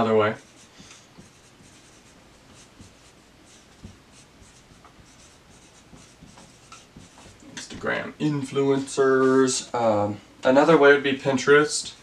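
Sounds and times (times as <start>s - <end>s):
marker pen squeaking on whiteboard: 0.4s - 7.4s
soft knock: 3.8s - 4.1s.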